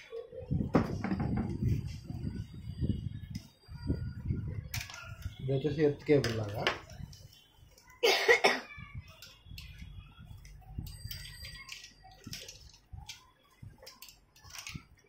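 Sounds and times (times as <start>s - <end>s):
wires and parts rustling: 0.0s - 8.1s, 8.8s - 15.0s.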